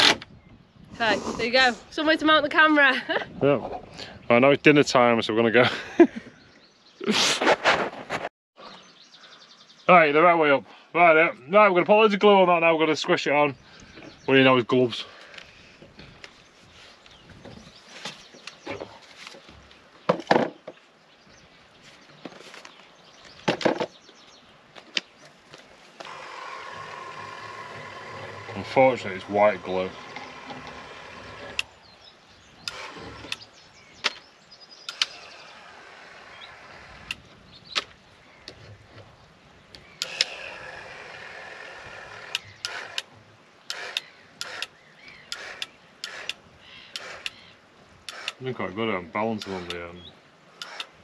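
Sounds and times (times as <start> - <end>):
caulking gun motor running: 26.0 - 31.7, 32.6 - 33.4, 34.9 - 37.2, 40.0 - 43.1, 43.7 - 47.4, 48.1 - 48.4, 49.4 - 49.8, 50.6 - 51.0
short clicking bursts: 32.6 - 33.5, 34.9 - 35.2, 40.0 - 41.1, 42.2 - 43.1, 43.7 - 47.4, 48.0 - 48.4, 49.3 - 49.8, 50.6 - 51.0.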